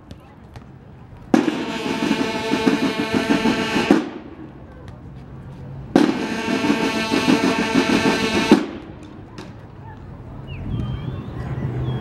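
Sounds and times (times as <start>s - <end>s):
snare drum rolls: 1.3s - 4.3s, 6.0s - 9.2s.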